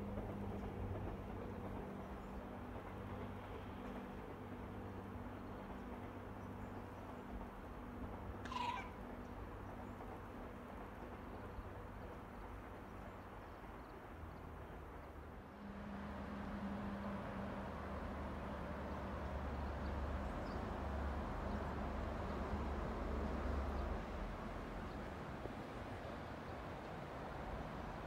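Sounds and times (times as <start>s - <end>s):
train hum and rumble: 0.0s - 28.0s.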